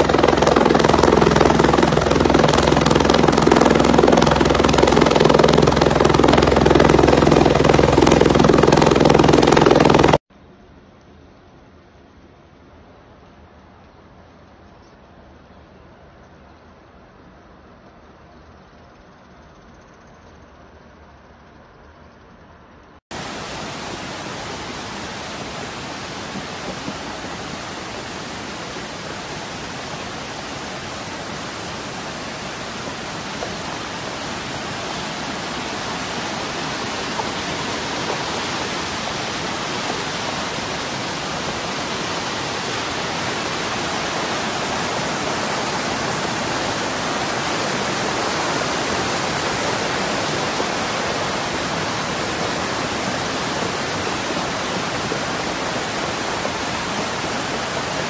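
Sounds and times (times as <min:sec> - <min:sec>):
floodwater rushing: 0:00.0 - 0:10.2, 0:23.1 - 0:58.0.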